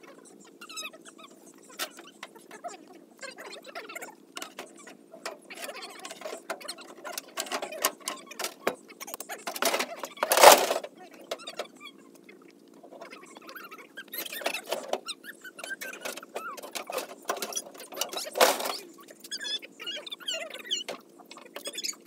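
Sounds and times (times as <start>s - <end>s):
metal clicks and scrapes: 4.4s - 11.4s, 14.2s - 15.0s, 15.6s - 18.8s.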